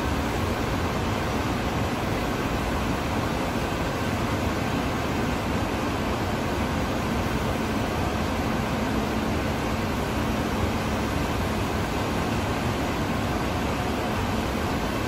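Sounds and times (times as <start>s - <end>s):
industrial machinery hum and hiss: 0.0s - 15.0s.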